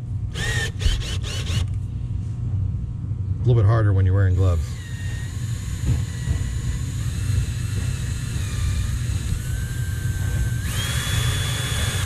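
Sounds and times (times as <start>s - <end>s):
power drill whining under load: 0.3s - 1.8s, 4.4s - 12.0s.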